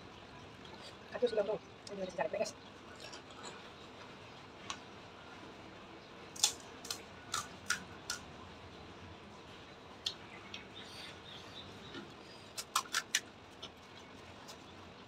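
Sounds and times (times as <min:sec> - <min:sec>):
crunchy chewing: 0:02.8 - 0:04.0, 0:06.4 - 0:08.3, 0:11.8 - 0:14.8.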